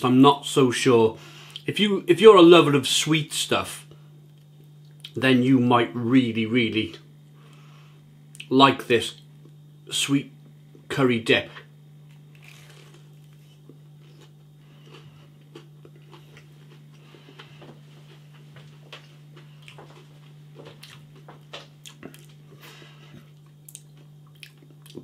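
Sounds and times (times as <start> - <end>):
steady low hum: 0.0 - 25.0
mouth clicks and soft crunches: 12.0 - 25.0
person chewing food: 12.0 - 25.0.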